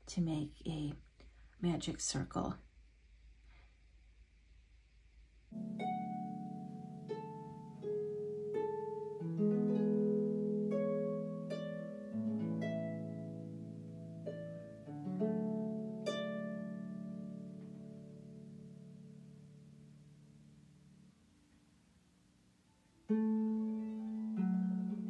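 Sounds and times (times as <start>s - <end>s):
plucked notes: 5.5s - 21.7s, 22.7s - 25.0s.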